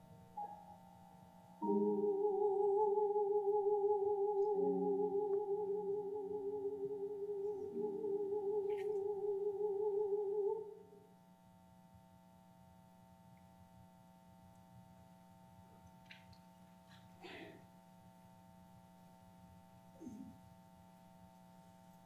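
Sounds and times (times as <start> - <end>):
grand piano chords: 0.0 - 10.9
woman singing with vibrato: 1.7 - 10.9.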